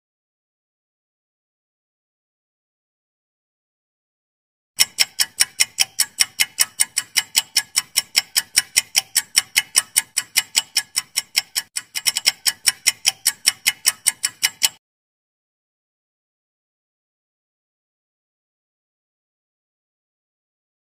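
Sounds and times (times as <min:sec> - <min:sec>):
rapid clock-like ticking: 0:04.8 - 0:14.8.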